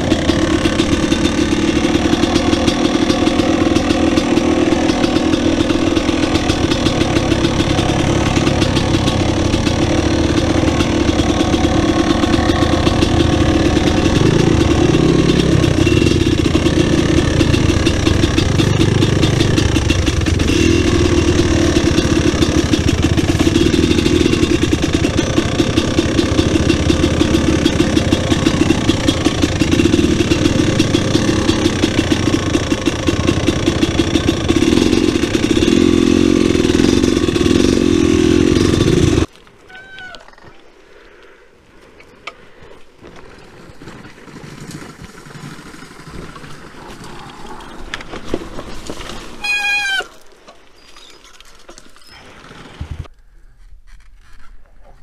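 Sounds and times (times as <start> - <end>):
dirt bike engine idling: 0.0 - 39.3.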